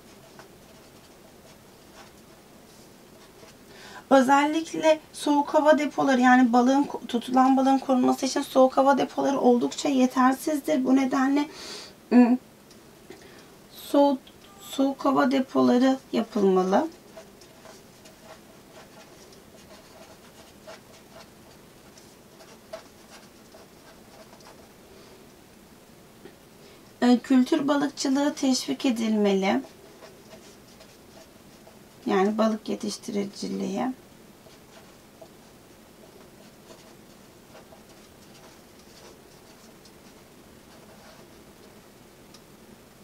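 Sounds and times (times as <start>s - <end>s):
marker writing on paper: 16.2s - 24.7s, 36.0s - 41.4s.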